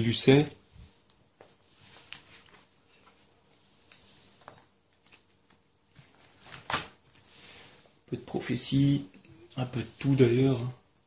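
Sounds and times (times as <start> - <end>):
plastic sleeves rustling: 0.3 - 8.0.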